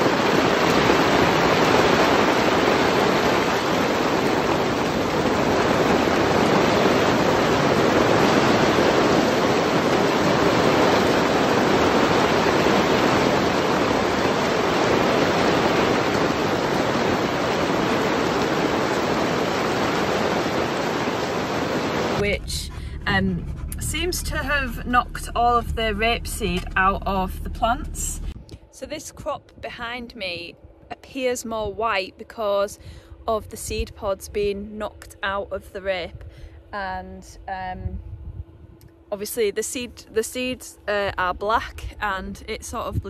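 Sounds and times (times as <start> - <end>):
hail and heavy rain falling: 0.0 - 22.2.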